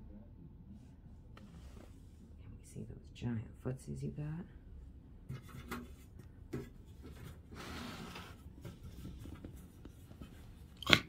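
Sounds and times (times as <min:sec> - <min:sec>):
faint rubbing and scraping: 0:00.7 - 0:02.4, 0:05.2 - 0:10.8.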